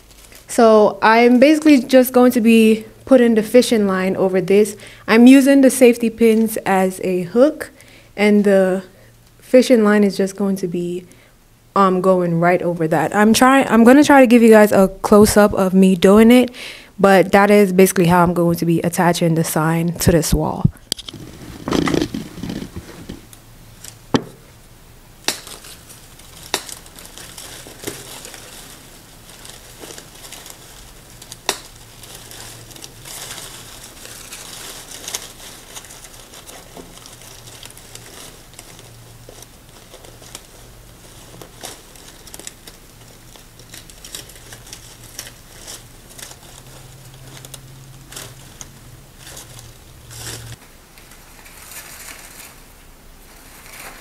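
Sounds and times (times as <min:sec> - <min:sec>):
plastic leaves rustling and crinkling: 0:00.0 - 0:06.6, 0:21.0 - 0:54.0.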